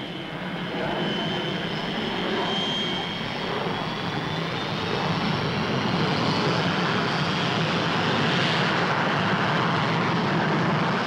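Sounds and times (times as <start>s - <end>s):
faint high whine: 0.0s - 6.0s.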